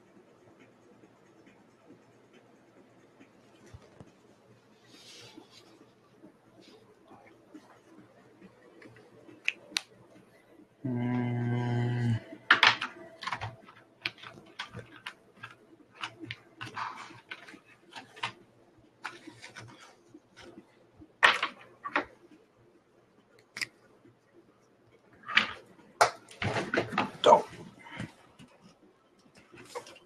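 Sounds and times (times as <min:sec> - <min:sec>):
trading cards rustling and clicking: 0:12.4 - 0:18.4, 0:19.0 - 0:20.6.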